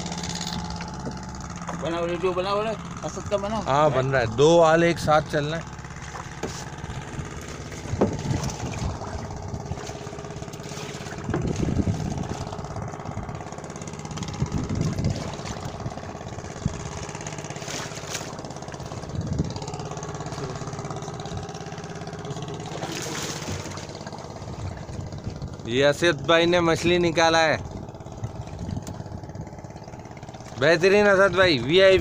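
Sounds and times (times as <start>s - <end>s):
boat engine idling: 0.0s - 32.0s
short thumps: 7.8s - 8.9s.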